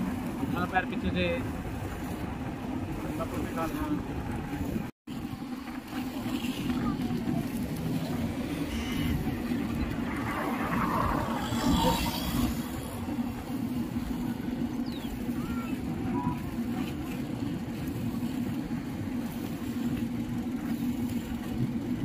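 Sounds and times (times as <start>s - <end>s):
road noise: 0.0s - 16.7s
vehicle rumbling along road: 0.0s - 22.0s
wind: 0.0s - 22.0s.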